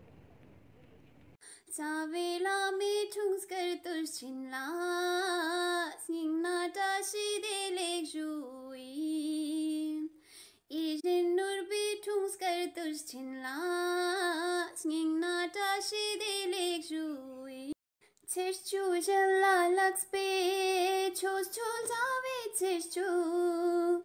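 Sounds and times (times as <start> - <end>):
faint room noise: 0.0 - 2.4
woman singing devotional song: 1.4 - 24.0.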